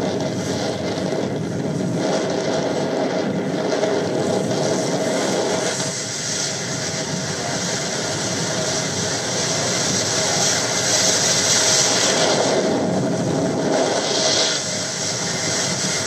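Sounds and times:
boat engine drone: 0:00.0 - 0:16.0
water churning along hull: 0:07.6 - 0:16.0.

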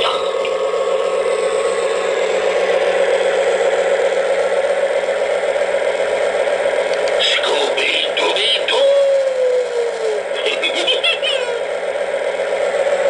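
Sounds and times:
toy train motor whirring: 0:08.2 - 0:11.7.

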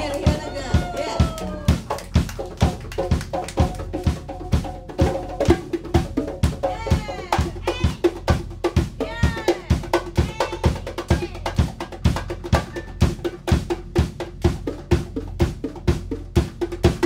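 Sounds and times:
live band playing funk-rock: 0:00.0 - 0:08.4
conga slaps and open tones: 0:00.0 - 0:17.0.

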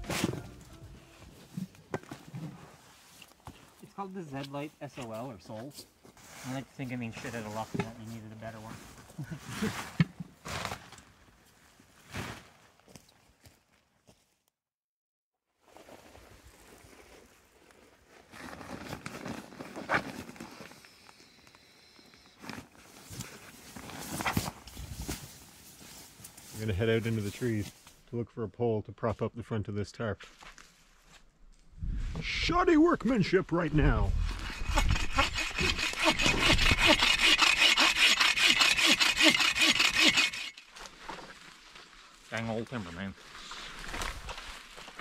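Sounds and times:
nylon gear rustling: 0:15.7 - 0:21.1, 0:22.4 - 0:26.6
bow saw rasping through wood: 0:34.2 - 0:40.7.

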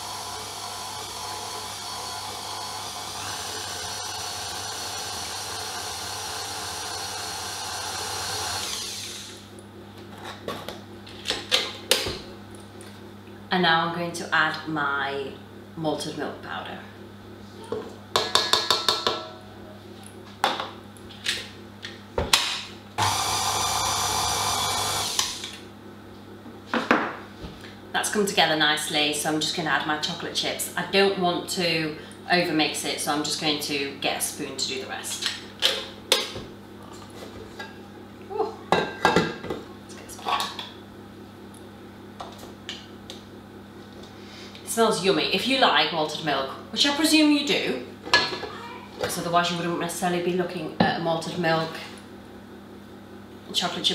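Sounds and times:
stand mixer motor running: 0:00.0 - 0:09.5, 0:23.0 - 0:25.7
taps on steel mixing bowl: 0:18.1 - 0:19.2.

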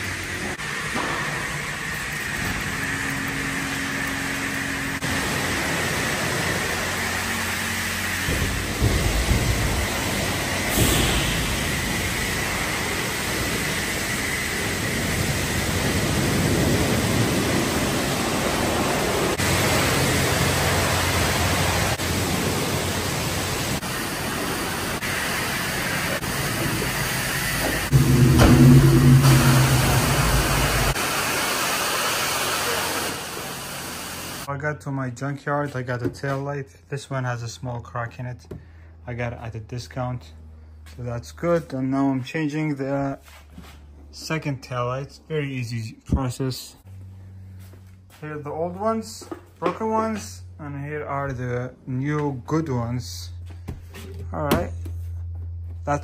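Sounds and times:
pressure washer spraying car: 0:00.0 - 0:34.5
low hum: 0:23.6 - 0:31.5.

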